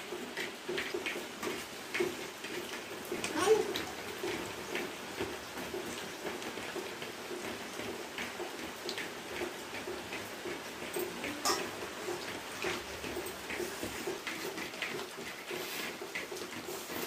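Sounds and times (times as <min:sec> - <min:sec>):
spoon clinking on plate: 0:11.4 - 0:11.8.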